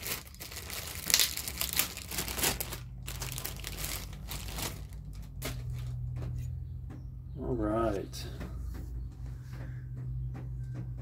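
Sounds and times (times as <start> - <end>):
plastic bag crinkling: 0.0 - 6.1.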